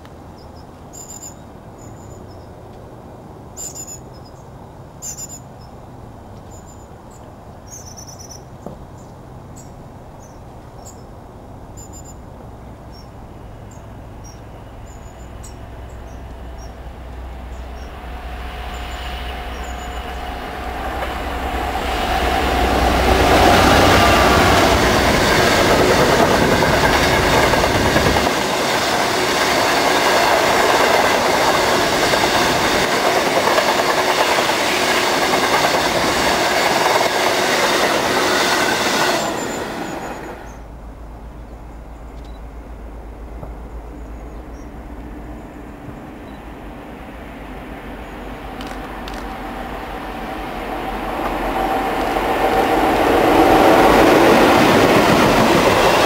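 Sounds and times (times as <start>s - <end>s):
diesel locomotive engine drone: 9.3s - 56.0s
birds chirping: 12.9s - 40.6s.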